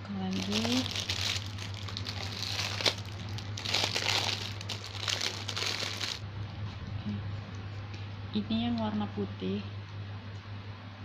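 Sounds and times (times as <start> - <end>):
plastic wrapping crinkling: 0.2 - 6.2.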